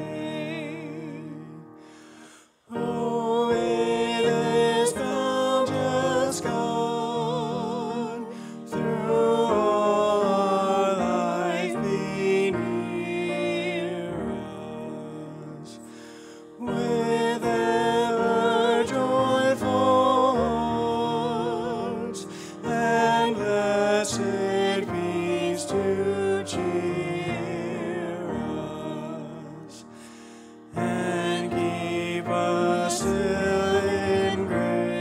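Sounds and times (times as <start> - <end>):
grand piano accompaniment: 0.0 - 35.0.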